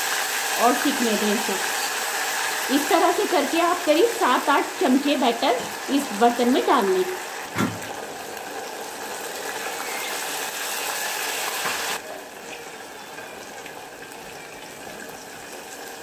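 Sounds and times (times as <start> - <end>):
batter sizzling in hot oil: 0.0 - 16.0.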